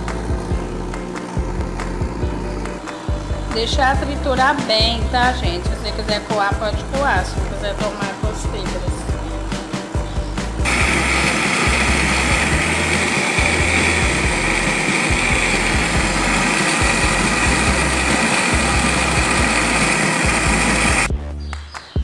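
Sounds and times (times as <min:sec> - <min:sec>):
blender motor whine: 0:00.0 - 0:03.5, 0:10.6 - 0:21.1.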